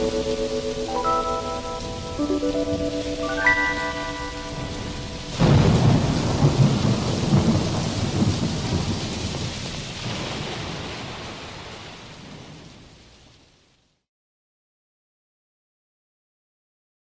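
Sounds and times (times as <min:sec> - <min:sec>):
thunder clap rumbling: 0:00.0 - 0:13.4
steady rain: 0:00.0 - 0:14.1.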